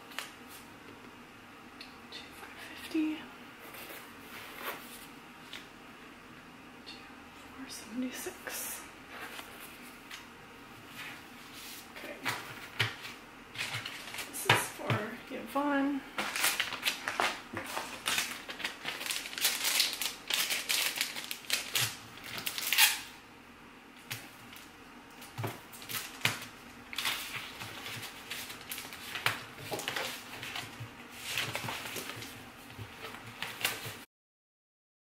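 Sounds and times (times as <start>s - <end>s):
paper rustling and tapping on desk: 12.0s - 15.1s, 24.0s - 34.0s.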